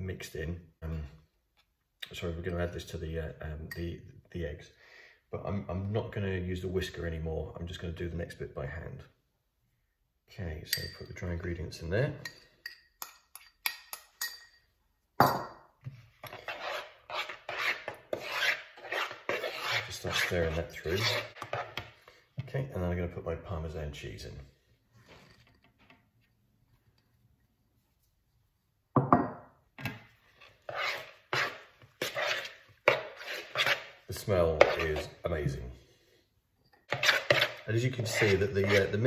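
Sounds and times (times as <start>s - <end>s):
metal spoon clinking on ceramic bowl: 10.7s - 11.2s, 12.2s - 14.7s
spoon scraping plastic bowl: 16.0s - 22.3s, 30.1s - 35.6s, 36.8s - 39.0s.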